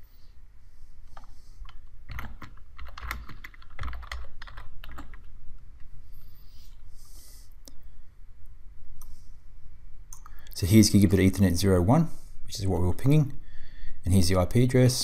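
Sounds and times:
computer keyboard typing: 1.2s - 5.3s.

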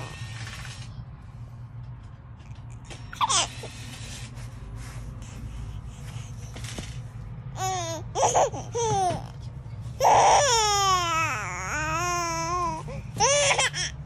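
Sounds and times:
baby squealing and cooing: 3.1s - 3.6s, 7.6s - 9.4s, 10.0s - 14.0s.

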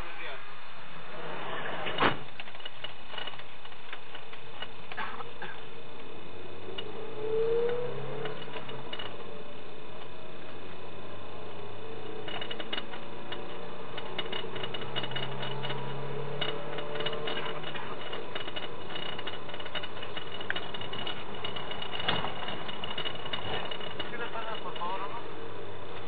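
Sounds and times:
low engine hum: 0.0s - 26.0s
clicking rattle of van body: 1.8s - 5.6s, 7.6s - 9.3s, 12.0s - 25.1s.

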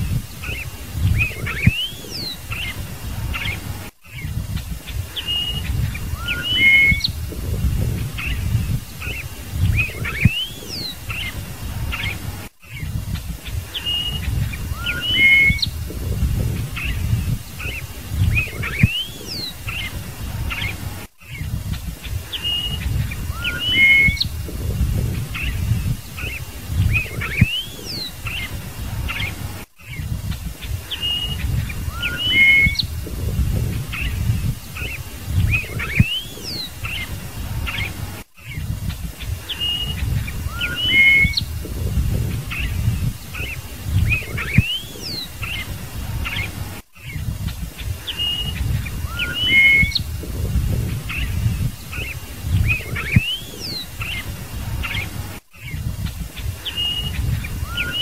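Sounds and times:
blackbird singing: 0.0s - 55.8s, 56.4s - 58.0s
low rumble: 15.7s - 17.5s, 24.2s - 26.0s, 32.8s - 34.6s, 41.4s - 43.3s.

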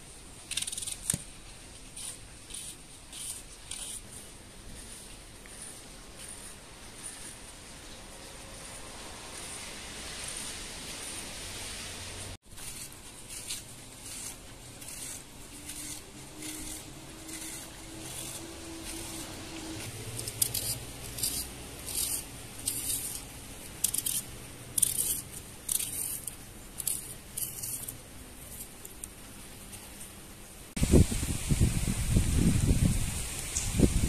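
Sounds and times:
knife slicing onion: 2.0s - 11.6s, 12.5s - 29.0s.

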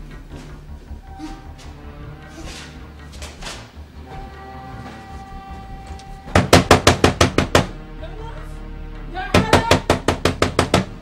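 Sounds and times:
background music: 0.0s - 11.0s
rapid knocking on a door: 6.3s - 7.8s, 9.3s - 11.0s.

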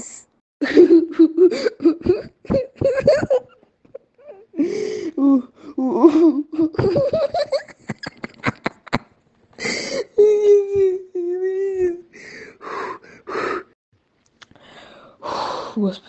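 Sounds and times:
person laughing hard: 0.6s - 4.4s, 6.0s - 9.1s.

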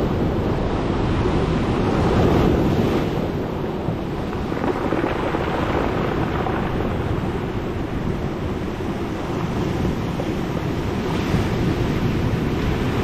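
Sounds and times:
surf washing over pebbles: 1.3s - 13.0s.

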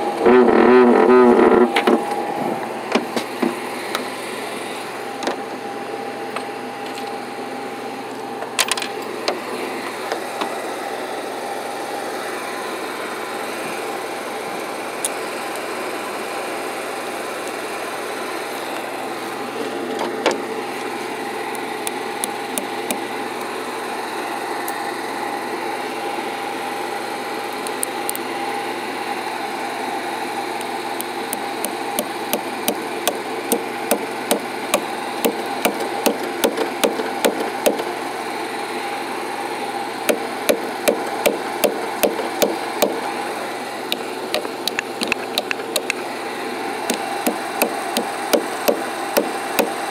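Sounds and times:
truck engine running: 18.4s - 26.4s, 29.4s - 49.9s
hammer striking nail into wood: 31.3s - 37.9s, 40.1s - 43.0s, 44.7s - 46.0s, 46.9s - 49.8s.

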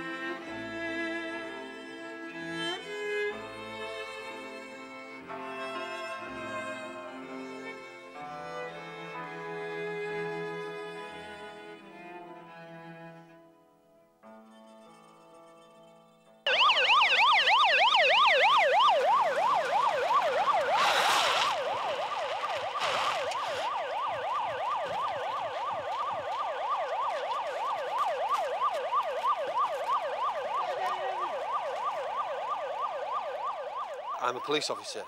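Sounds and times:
police siren yelp: 16.5s - 35.0s.

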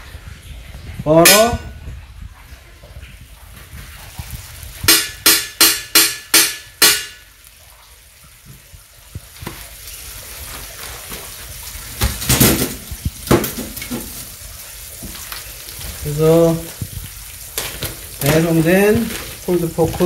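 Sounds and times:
butter sizzling on griddle: 4.0s - 20.0s.

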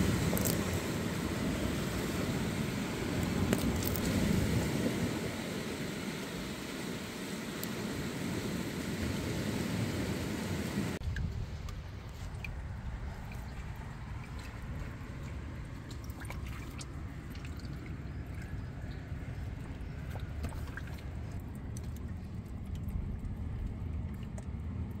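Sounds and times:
water drips and splashes: 0.0s - 10.0s, 10.9s - 25.0s
steady low rumble: 0.0s - 25.0s
seawater lapping on rocks: 12.0s - 24.9s.

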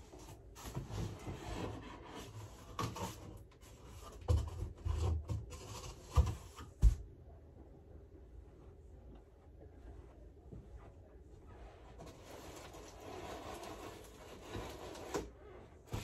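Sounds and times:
cardboard scraping and rubbing: 0.1s - 6.6s, 11.8s - 16.0s.

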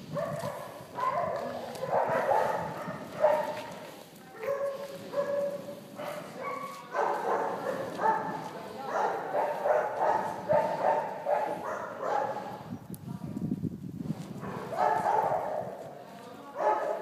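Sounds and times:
dogs barking and yelping: 0.1s - 3.7s, 4.4s - 12.6s, 14.4s - 15.8s.

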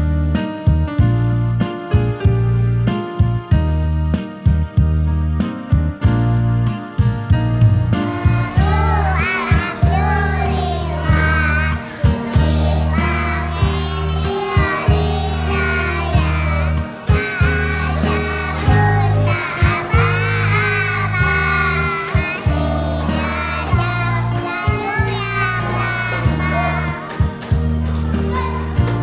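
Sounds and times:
backing music with beat: 0.4s - 29.0s
children singing: 8.0s - 29.0s.

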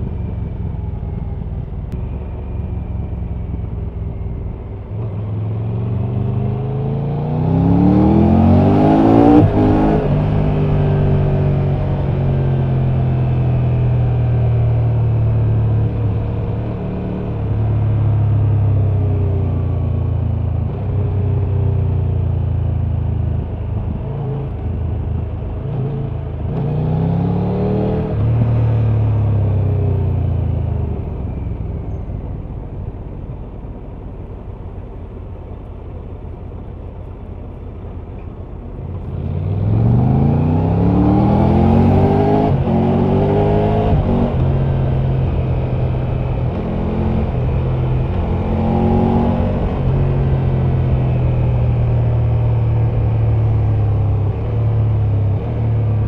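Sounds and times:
motorcycle engine revving: 4.8s - 19.4s, 39.0s - 56.0s.

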